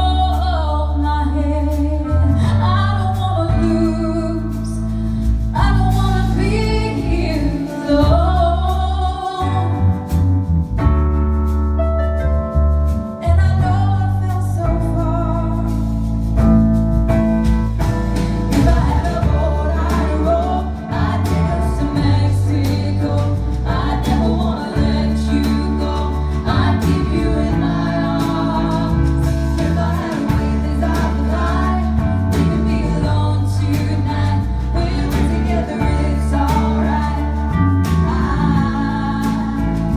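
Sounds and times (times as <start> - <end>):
woman singing into microphone: 0.0 - 4.9, 5.5 - 9.9, 13.2 - 15.8, 18.5 - 39.9
deep steady bass line: 0.0 - 39.9
drums: 0.0 - 39.9.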